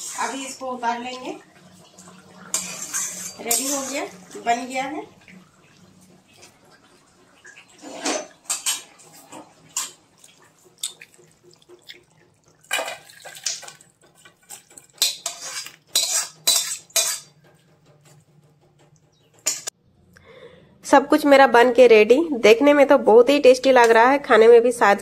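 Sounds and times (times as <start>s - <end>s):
metal spatula scraping a pan: 0.0s - 6.6s, 7.6s - 10.2s, 12.7s - 18.3s, 19.4s - 19.7s.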